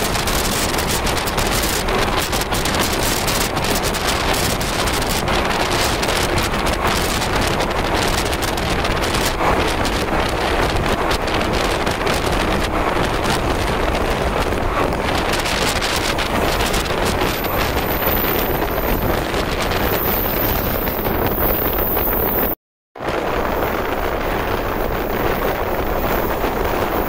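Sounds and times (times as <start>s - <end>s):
electric train running: 14.6s - 22.5s, 23.2s - 27.0s.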